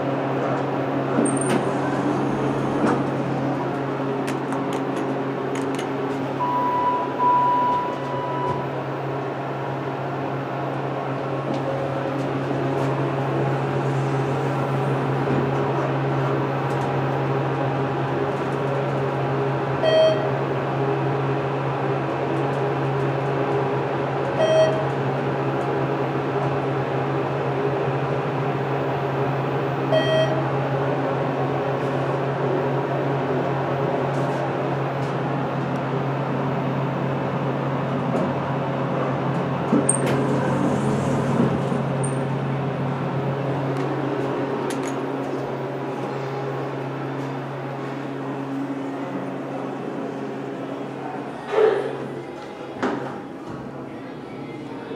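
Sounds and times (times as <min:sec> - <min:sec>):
elevator low hum: 0:00.0 - 0:54.9
short electronic beeps: 0:06.4 - 0:08.7, 0:19.8 - 0:20.3, 0:24.4 - 0:24.8, 0:29.9 - 0:30.4.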